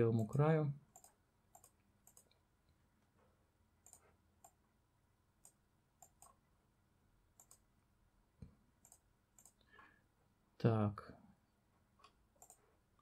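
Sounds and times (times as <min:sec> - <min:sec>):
faint computer mouse clicks: 0:00.2 - 0:02.4, 0:03.8 - 0:04.6, 0:05.4 - 0:06.4, 0:07.4 - 0:07.6, 0:08.4 - 0:09.7, 0:12.0 - 0:12.6.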